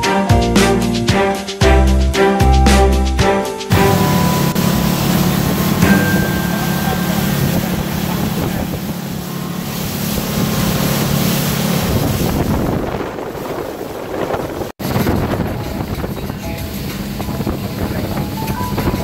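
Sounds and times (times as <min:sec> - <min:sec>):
water rushing past hull: 0:00.7 - 0:19.0
motorboat engine droning: 0:03.7 - 0:19.0
wind buffeting microphone: 0:07.2 - 0:19.0.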